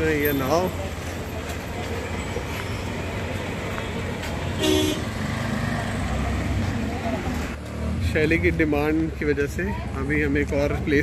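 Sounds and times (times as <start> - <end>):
road traffic rumble: 0.0 - 11.0
vehicle horn honk: 4.6 - 5.1.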